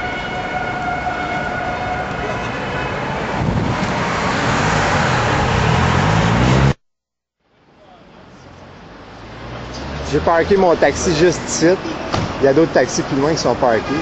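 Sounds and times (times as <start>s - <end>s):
city street traffic: 0.0s - 6.8s, 7.4s - 14.0s
vehicle engine speeding up: 3.4s - 6.8s.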